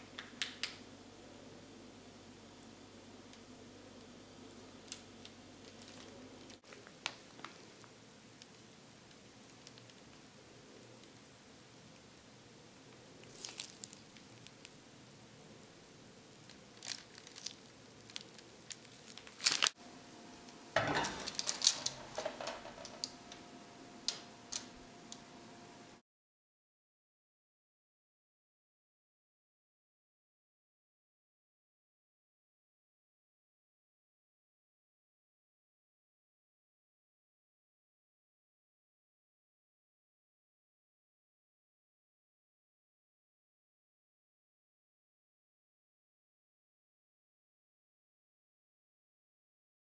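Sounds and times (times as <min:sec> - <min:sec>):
piping bag squishing: 0:04.9 - 0:11.1, 0:13.0 - 0:14.8, 0:16.3 - 0:19.8, 0:21.0 - 0:23.2
rustling and clatter: 0:20.8 - 0:23.2.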